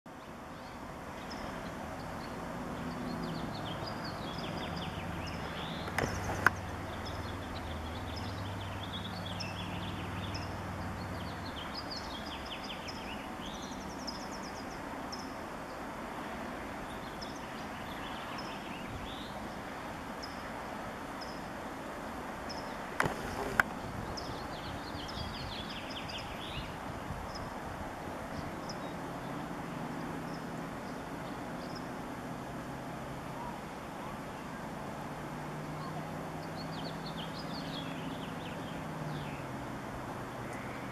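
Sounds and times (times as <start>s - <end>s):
sharp clicks: 5.8s - 6.6s
low engine drone: 22.9s - 24.3s.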